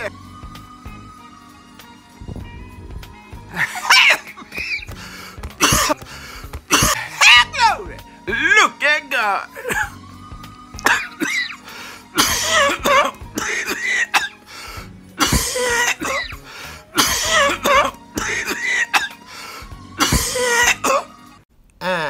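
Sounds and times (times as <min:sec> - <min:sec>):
background music: 0:00.0 - 0:22.0
woman coughing hard: 0:03.6 - 0:04.8, 0:05.6 - 0:06.0, 0:06.7 - 0:07.5, 0:09.6 - 0:10.0, 0:10.8 - 0:11.6, 0:12.2 - 0:14.4, 0:15.2 - 0:16.4, 0:17.0 - 0:19.2, 0:20.0 - 0:21.1.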